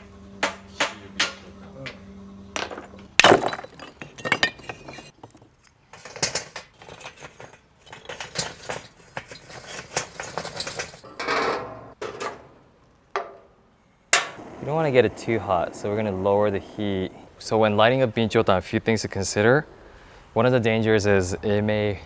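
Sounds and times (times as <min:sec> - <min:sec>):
charcoal clinking and knocking: 0:02.6 - 0:11.0.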